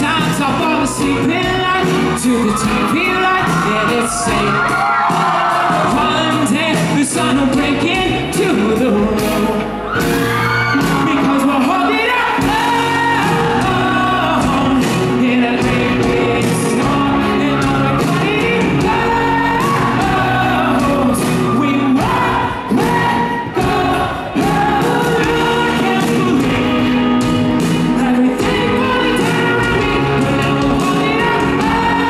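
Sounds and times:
man singing into a microphone: 0:00.0 - 0:26.9, 0:27.8 - 0:32.0
drums: 0:00.0 - 0:32.0
electric guitar: 0:00.0 - 0:32.0
keyboards: 0:00.0 - 0:32.0.

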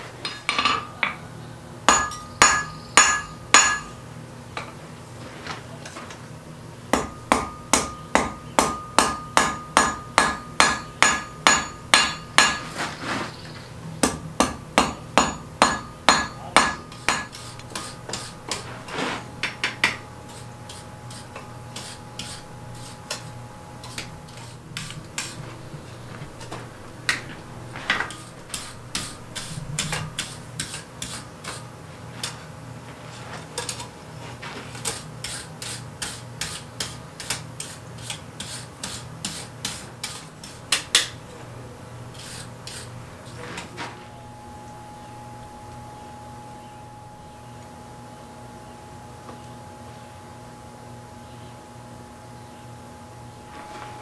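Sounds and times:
hammer striking iron on anvil: 0:00.2 - 0:01.2, 0:01.9 - 0:04.0, 0:06.9 - 0:12.8, 0:14.0 - 0:18.3, 0:19.4 - 0:20.0.

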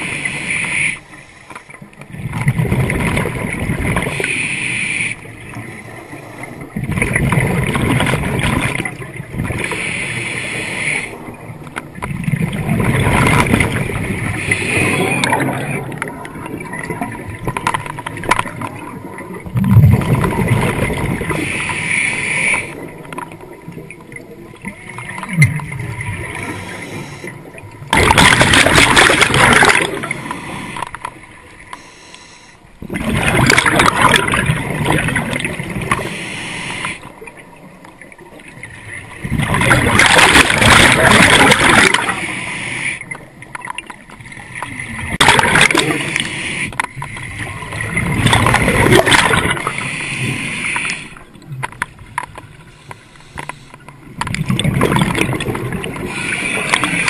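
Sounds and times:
exhaled bubbles rushing: 0:02.1 - 0:04.3, 0:06.6 - 0:09.7, 0:11.2 - 0:21.5, 0:22.7 - 0:30.9, 0:32.8 - 0:36.1, 0:37.3 - 0:42.3, 0:43.4 - 0:46.3, 0:47.1 - 0:49.9, 0:54.2 - 0:57.0
diver inhaling through regulator: 0:14.2 - 0:15.4, 0:26.3 - 0:27.5, 0:31.7 - 0:32.7, 0:35.9 - 0:37.1, 0:45.8 - 0:46.8, 0:49.6 - 0:51.2.

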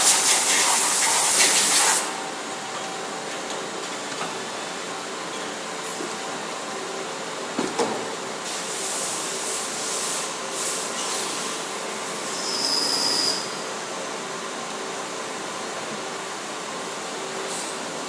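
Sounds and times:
compressed air hissing: 0:00.0 - 0:02.1
machine shop hum: 0:00.0 - 0:18.0.

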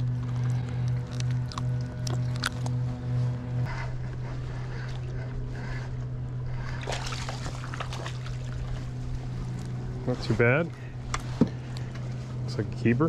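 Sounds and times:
water splashing: 0:06.7 - 0:09.0.

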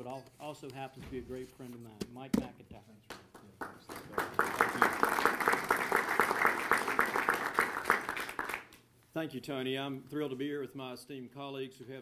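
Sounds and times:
audience applauding: 0:03.6 - 0:08.8.

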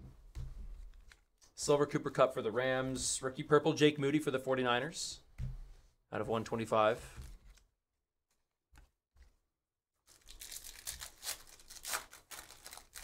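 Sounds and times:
foil wrapper tearing and crinkling: 0:10.1 - 0:13.0.

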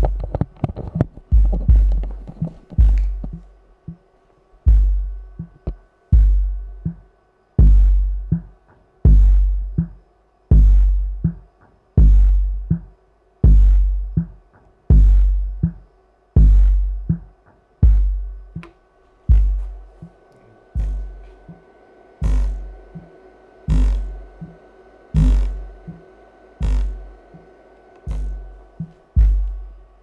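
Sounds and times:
subwoofers playing electronic music: 0:00.0 - 0:03.6, 0:04.6 - 0:30.0
deep bass drum hits: 0:01.3 - 0:02.0, 0:19.3 - 0:19.6, 0:25.2 - 0:26.0, 0:28.1 - 0:29.7.

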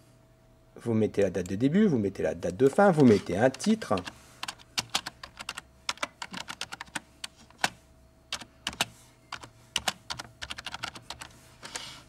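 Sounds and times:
keyboard typing clicks: 0:07.6 - 0:11.3.

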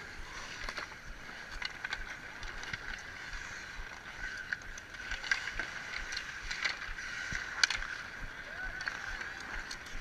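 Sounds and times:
skates scraping on ice: 0:00.0 - 0:10.0.

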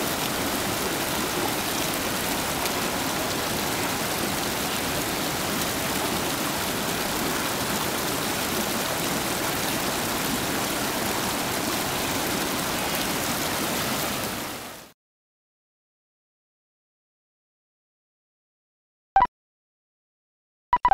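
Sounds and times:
whitewater rapids rushing: 0:00.0 - 0:14.6.

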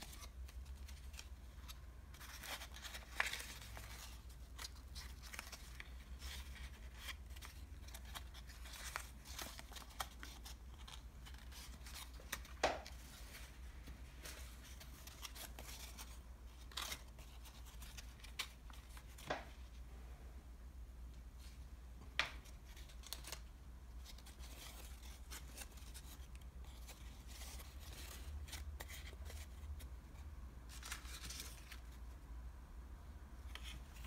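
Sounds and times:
paperboard crackling and snapping: 0:00.0 - 0:13.4, 0:22.2 - 0:29.4.

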